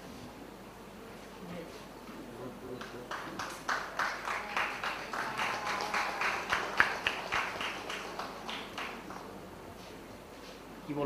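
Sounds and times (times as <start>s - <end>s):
audience applause: 3.0s - 9.4s.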